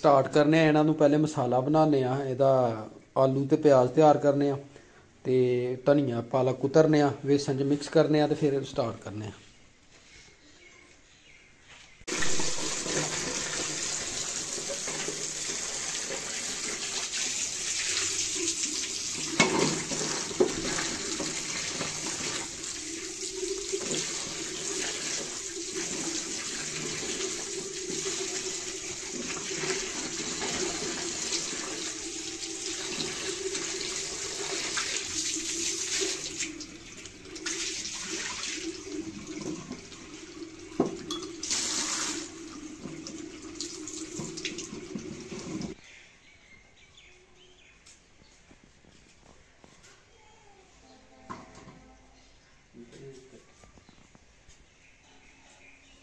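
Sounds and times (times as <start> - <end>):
tap water running into steel bowl: 12.1 - 45.8.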